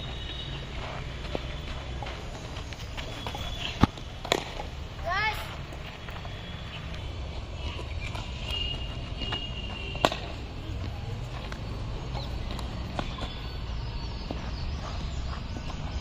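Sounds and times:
cricket bat striking ball: 0:03.5 - 0:04.7, 0:09.3 - 0:10.4.

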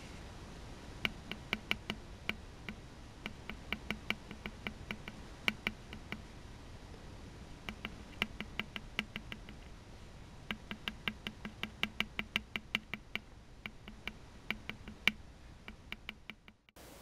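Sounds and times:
pen tip tapping on gourd shell: 0:01.0 - 0:06.3, 0:07.6 - 0:09.6, 0:10.5 - 0:16.8.

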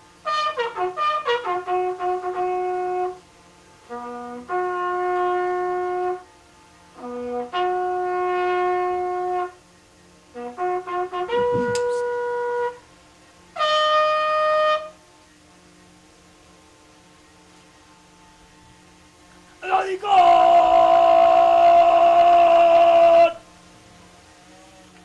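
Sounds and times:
military bugle call: 0:00.2 - 0:03.2, 0:03.8 - 0:06.3, 0:06.9 - 0:09.6, 0:10.3 - 0:12.9, 0:13.6 - 0:15.0, 0:19.5 - 0:23.5.

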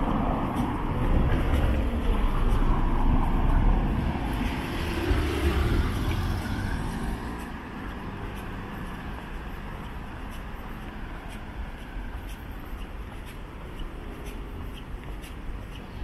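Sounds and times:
vehicle passing by: 0:00.0 - 0:10.4.

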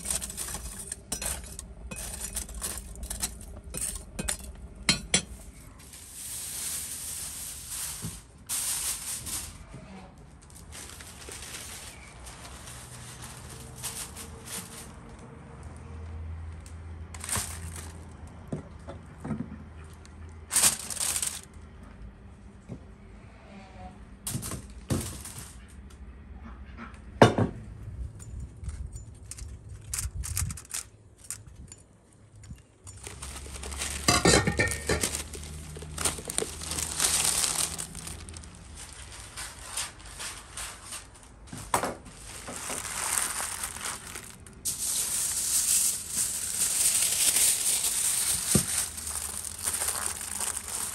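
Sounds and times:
paper and foil crinkling: 0:00.0 - 0:15.4, 0:17.1 - 0:18.2, 0:20.4 - 0:21.6, 0:24.3 - 0:25.6, 0:29.2 - 0:31.5, 0:32.5 - 0:50.9.

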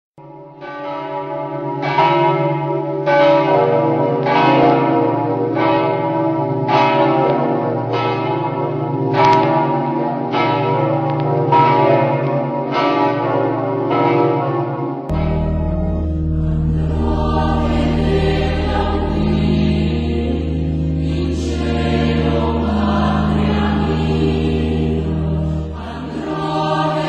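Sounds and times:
church bells ringing: 0:00.2 - 0:27.0.

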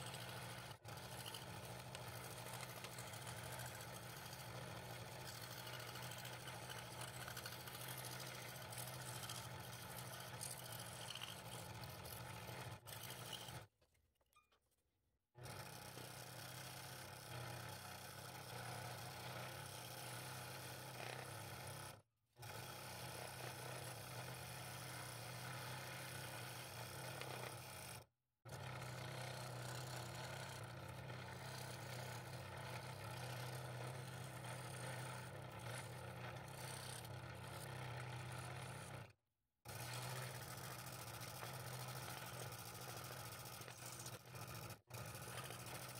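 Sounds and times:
scroll saw cutting wood: 0:00.0 - 0:13.8, 0:15.4 - 0:45.9.

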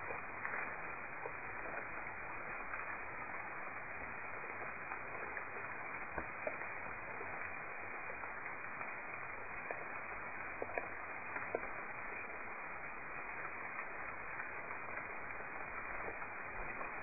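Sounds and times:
faint clicks: 0:10.6 - 0:12.3.

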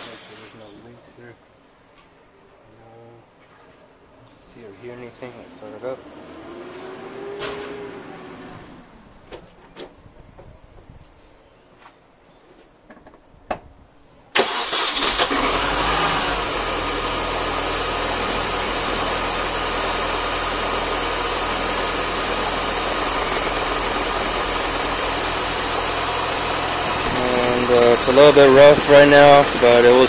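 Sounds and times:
car engine starting and idling: 0:14.3 - 0:30.0.

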